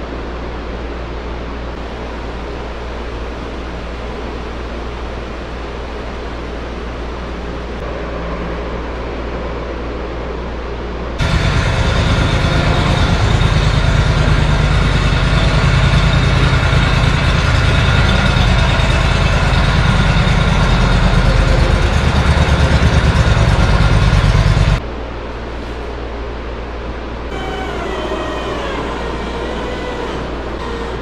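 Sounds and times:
steady engine hum: 0:00.0 - 0:31.0
riding lawn mower engine: 0:11.2 - 0:24.8.

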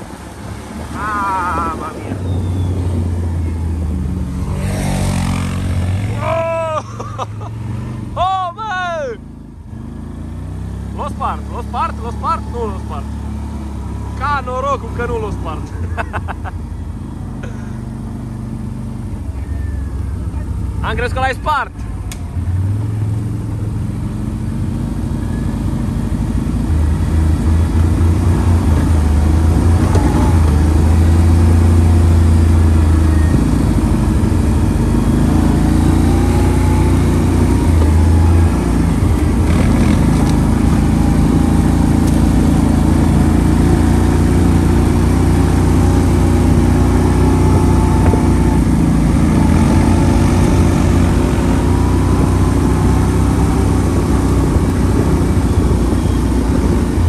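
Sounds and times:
wind rush: 0:00.0 - 0:06.2
quad bike engine running: 0:00.0 - 0:09.4, 0:21.8 - 0:57.0.

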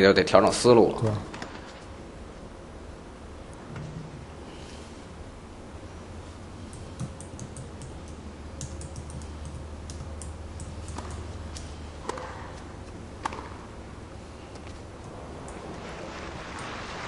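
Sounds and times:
steady low hum: 0:00.0 - 0:17.0
tennis ball struck by racket: 0:12.0 - 0:13.8.

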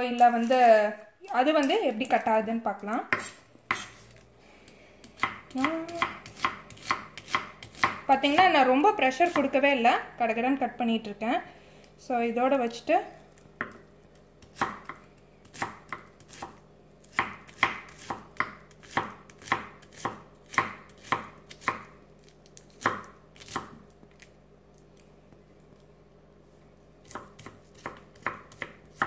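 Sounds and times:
knife chopping on wooden board: 0:03.1 - 0:04.0, 0:05.0 - 0:08.5, 0:13.6 - 0:13.8, 0:14.4 - 0:21.9, 0:27.0 - 0:29.0.

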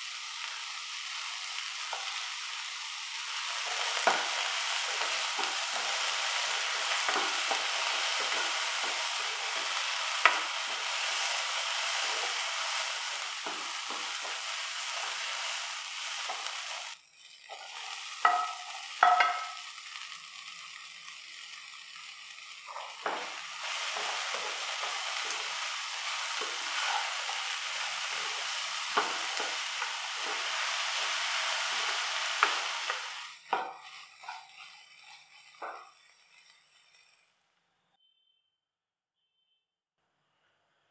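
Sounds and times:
vegetables sizzling in hot oil: 0:00.0 - 0:37.3
spatula scraping pan: 0:03.4 - 0:19.6, 0:22.7 - 0:36.4.

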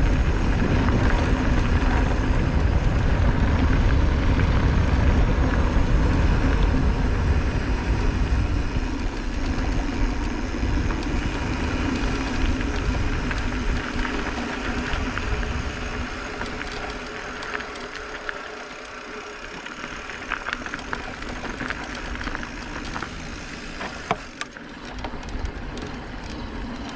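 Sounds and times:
bike tyres on dirt trail: 0:00.0 - 0:26.9
wind buffeting camera: 0:00.0 - 0:26.9
small rattles and crunches: 0:09.0 - 0:26.9.

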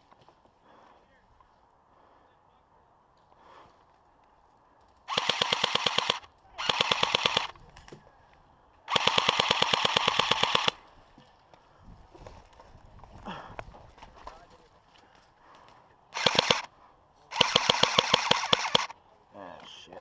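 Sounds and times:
airsoft gun firing full auto: 0:05.1 - 0:07.6, 0:08.9 - 0:10.8, 0:16.1 - 0:16.7, 0:17.3 - 0:19.0.

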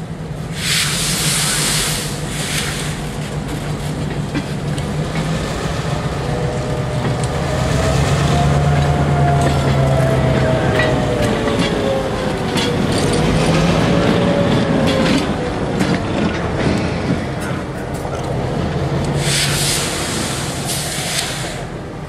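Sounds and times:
diesel locomotive engine drone: 0:00.0 - 0:22.0
brake air hiss: 0:00.5 - 0:03.3, 0:19.1 - 0:21.8.

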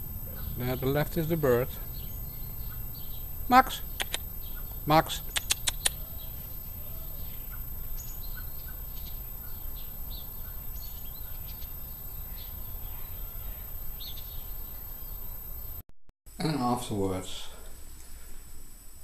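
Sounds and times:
small birds chirping: 0:00.0 - 0:15.5
low outdoor rumble: 0:00.0 - 0:15.8
sharp clicks: 0:03.8 - 0:04.3, 0:05.1 - 0:06.0.

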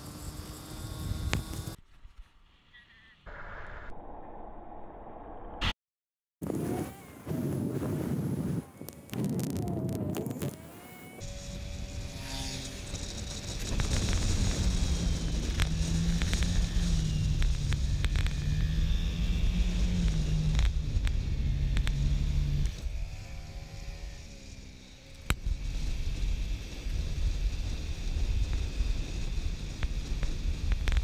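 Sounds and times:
scooter engine running: 0:00.0 - 0:01.8, 0:11.0 - 0:31.0
wind rushing over microphone: 0:06.4 - 0:23.5, 0:25.3 - 0:31.0.

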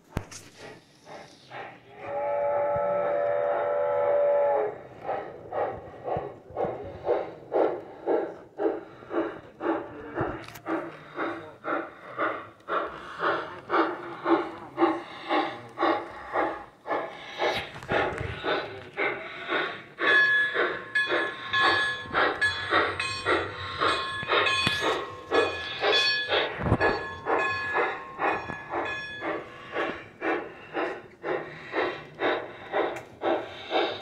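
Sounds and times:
steam locomotive chuffing: 0:00.0 - 0:34.0
steam locomotive whistle: 0:02.0 - 0:04.8.

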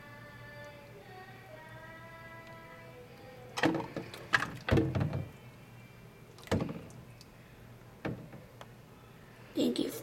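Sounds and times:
plastic clattering: 0:03.6 - 0:05.3.

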